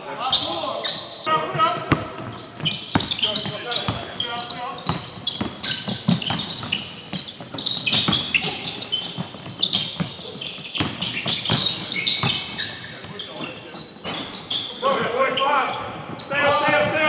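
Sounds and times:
sneakers squeaking on wood: 0.2s - 17.0s
basketball bouncing on wood floor: 1.8s - 4.1s, 4.8s - 10.1s, 10.8s - 12.6s.

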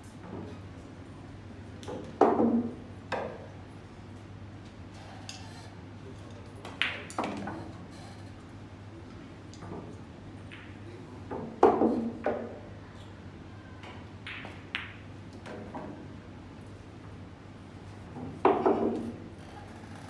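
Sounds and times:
pool balls clacking: 18.2s - 19.2s.

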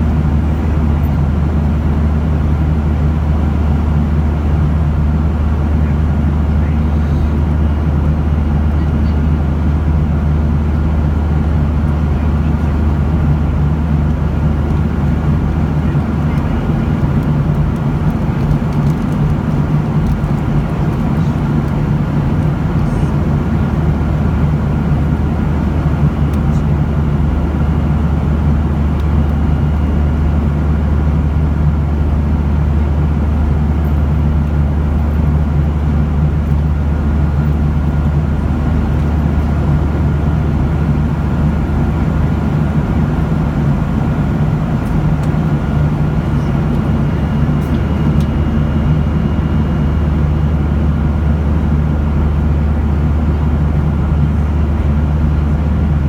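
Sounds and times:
jet engine cabin drone: 0.0s - 56.0s.

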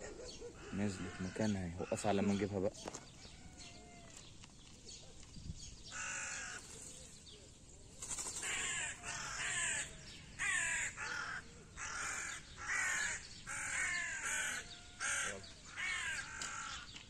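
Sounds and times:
crow cawing: 0.6s - 3.0s, 5.9s - 6.7s, 8.4s - 16.9s.

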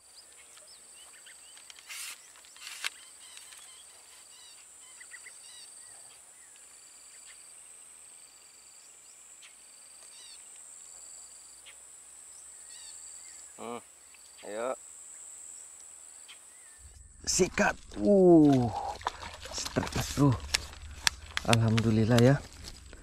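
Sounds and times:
bird chirping: 0.0s - 7.6s
insects droning: 0.0s - 23.0s
rustling: 1.5s - 4.4s, 16.8s - 23.0s.

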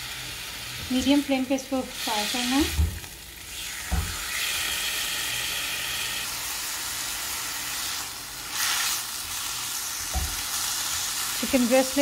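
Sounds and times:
chicken sizzling in oil: 0.0s - 12.0s
knock: 10.1s - 10.3s.

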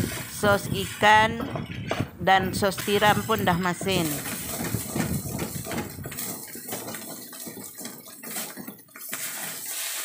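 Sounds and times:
spatula scraping metal wok: 0.0s - 10.0s
rice sizzling: 2.7s - 10.0s.

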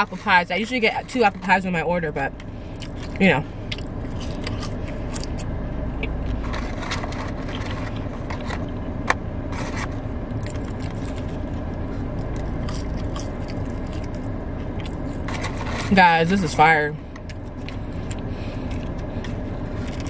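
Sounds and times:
car cabin hum: 0.0s - 20.0s
chewing fries: 2.7s - 8.8s, 9.6s - 16.0s, 17.1s - 20.0s.

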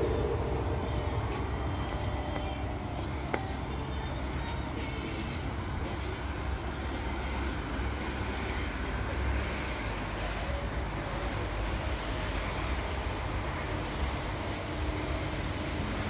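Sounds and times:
low rumble: 0.0s - 3.8s
hiss: 3.4s - 16.0s.

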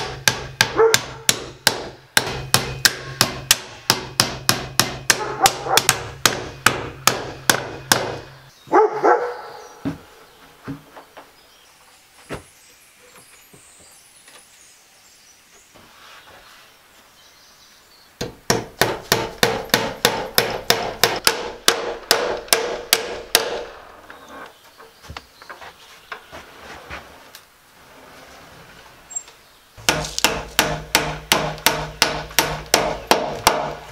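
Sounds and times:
hammer striking nails: 0.0s - 8.3s, 18.2s - 23.7s, 29.8s - 33.9s.

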